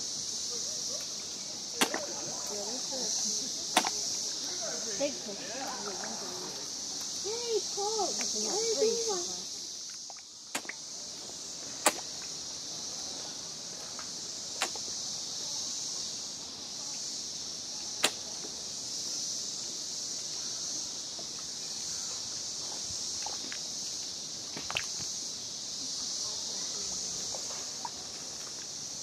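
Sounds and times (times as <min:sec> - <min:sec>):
high-pitched insect drone: 0:00.0 - 0:29.0
fish popping at water surface: 0:01.8 - 0:02.1, 0:03.8 - 0:04.0.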